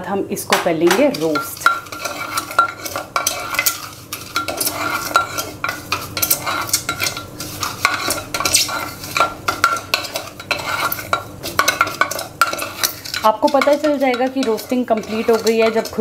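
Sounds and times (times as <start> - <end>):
light sizzle: 0.0 - 16.0
spatula scraping a pot: 1.0 - 16.0.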